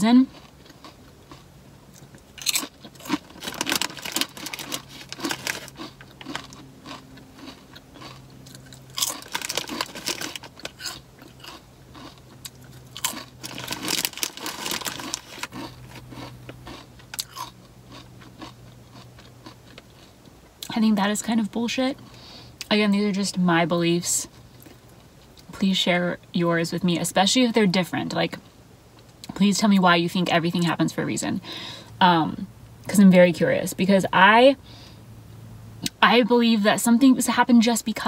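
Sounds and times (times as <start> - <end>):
crunching chips: 0.3 - 20.2.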